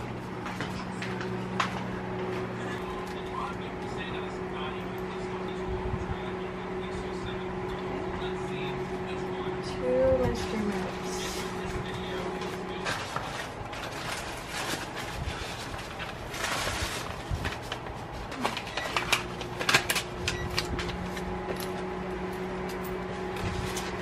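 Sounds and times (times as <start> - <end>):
steady low hum: 0.0 - 24.0
paper rustling: 10.3 - 21.8, 23.3 - 24.0.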